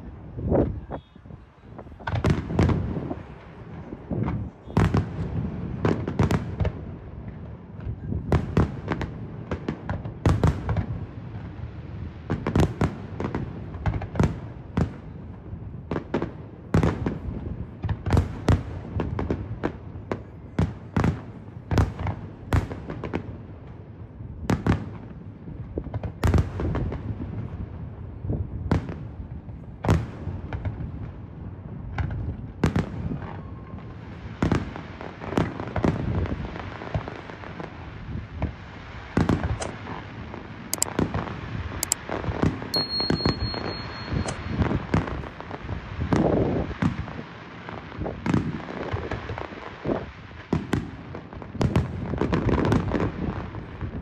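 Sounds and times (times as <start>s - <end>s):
crackling hiss: 36.5s - 50.5s
firework shells bursting: 41.8s - 42.0s, 42.8s - 45.1s.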